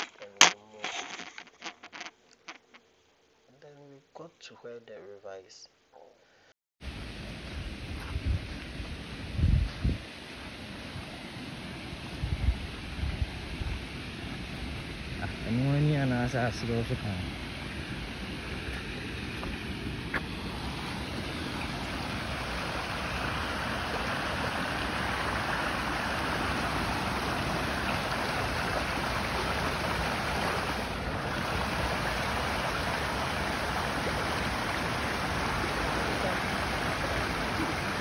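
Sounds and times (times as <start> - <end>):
flowing river water: 10.2 - 38.0.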